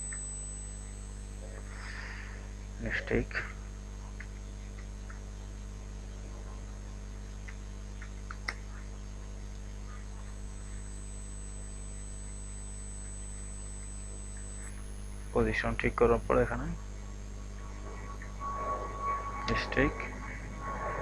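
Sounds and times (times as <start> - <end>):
electrical mains hum: 0.0 - 21.0
faint high whine: 0.0 - 21.0
faint clicks: 4.0 - 5.3.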